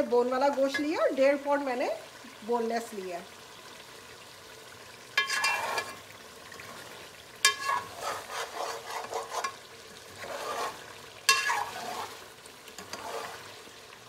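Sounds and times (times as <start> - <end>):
food sizzling in a pot: 0.0 - 14.0
spoon scraping a metal pot: 5.2 - 6.0, 7.4 - 12.2, 12.8 - 13.5.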